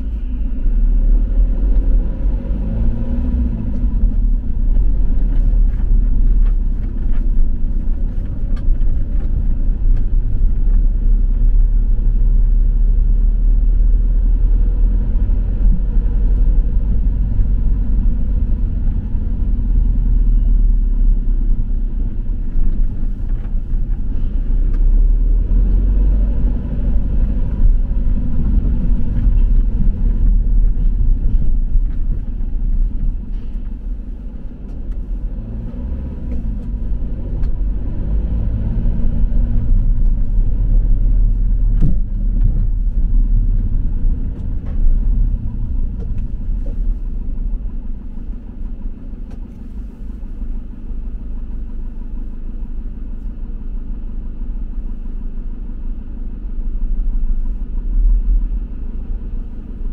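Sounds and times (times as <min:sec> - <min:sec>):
vehicle engine and tyre rumble: 0:00.0 - 0:59.9.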